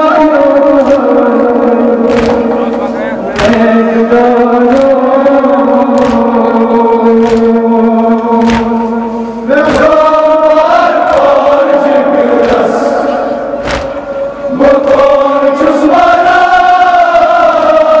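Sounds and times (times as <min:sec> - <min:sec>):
men chanting in unison: 0:00.0 - 0:18.0
chest-beating in rhythm: 0:01.9 - 0:15.1.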